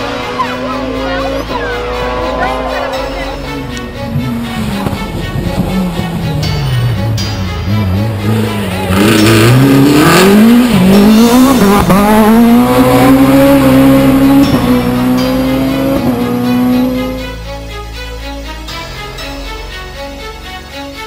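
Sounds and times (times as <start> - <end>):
rally car accelerating past: 7.8 - 17.2.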